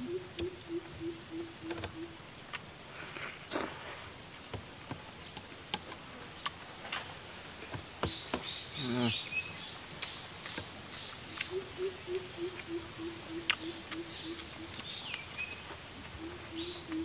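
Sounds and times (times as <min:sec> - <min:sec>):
animal hooting: 0:00.0 - 0:02.2, 0:11.5 - 0:14.8
chewing: 0:11.3 - 0:12.7, 0:13.4 - 0:16.2.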